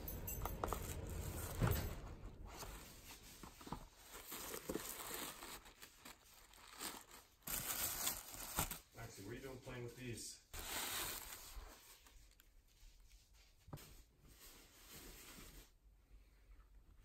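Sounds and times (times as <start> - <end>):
paper rustling and crinkling: 0.7 - 9.0, 10.6 - 15.8.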